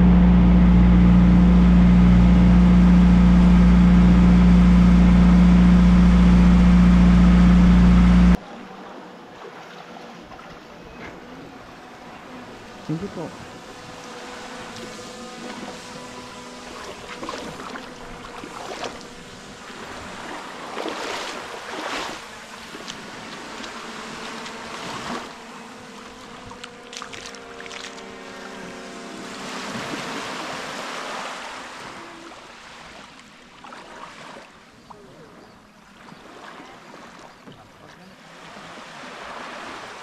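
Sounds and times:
boat engine humming: 0.0 - 40.0
water splashing along hull: 0.0 - 40.0.

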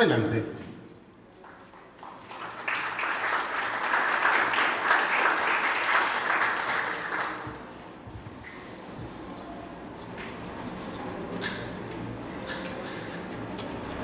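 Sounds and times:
audience applauding: 1.4 - 7.7.

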